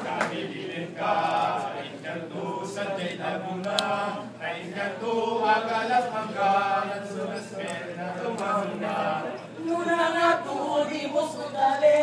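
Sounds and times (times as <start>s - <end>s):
men singing a chant: 0.0s - 12.0s.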